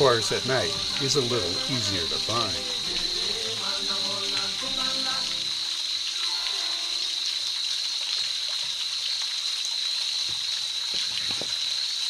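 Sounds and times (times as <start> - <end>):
even hiss: 0.0 - 9.0
high-pitched insect chorus: 0.0 - 12.0.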